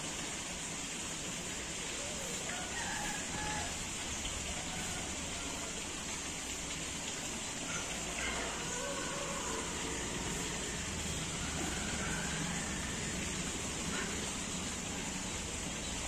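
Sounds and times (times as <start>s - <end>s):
river water flowing: 0.0s - 16.0s
faint rooster crowing: 2.0s - 6.0s, 7.6s - 14.9s.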